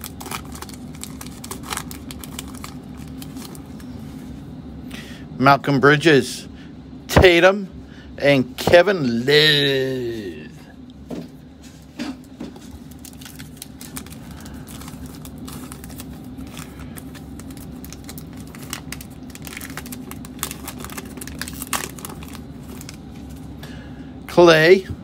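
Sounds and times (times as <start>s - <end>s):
plastic wrapper crinkling and tearing: 0.0s - 4.0s, 12.6s - 23.5s.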